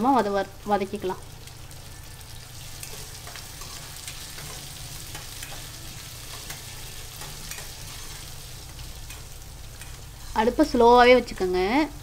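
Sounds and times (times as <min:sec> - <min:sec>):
food sizzling in oil: 0:00.0 - 0:12.0
metal spatula scraping pan: 0:02.7 - 0:10.6.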